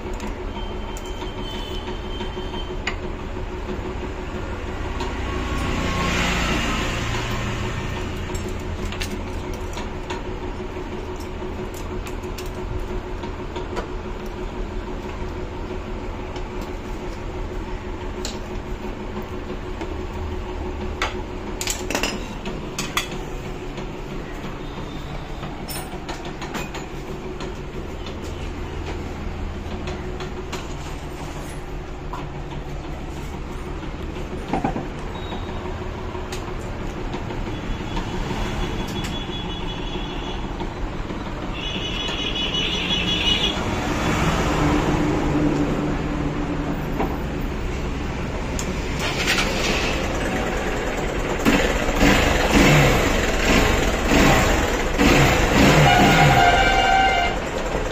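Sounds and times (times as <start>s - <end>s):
motorcycle engine idling: 49.9s - 55.6s.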